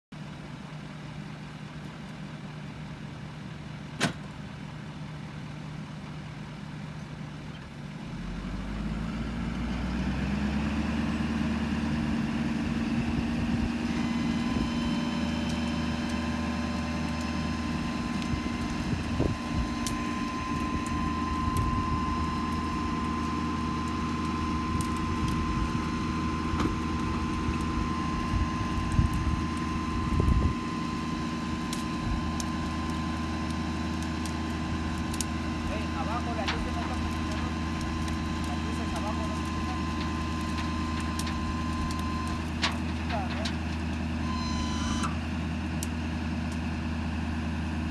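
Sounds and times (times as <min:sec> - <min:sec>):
diesel truck engine idling: 0:00.1 - 0:47.9
high steady whine: 0:11.8 - 0:45.2
hydraulic hoist deep hum: 0:12.2 - 0:45.3.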